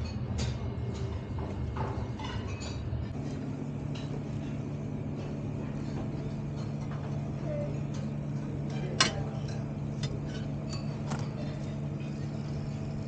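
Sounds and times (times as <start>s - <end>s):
low machine hum: 0.0s - 13.0s
metal utensils clinking: 7.8s - 12.2s.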